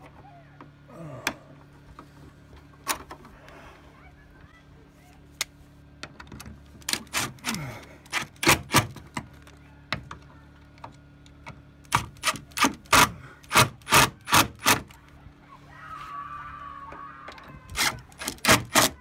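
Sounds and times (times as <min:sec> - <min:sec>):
cordless screw gun driving screws: 0:06.9 - 0:09.0, 0:11.8 - 0:15.0, 0:17.7 - 0:19.0.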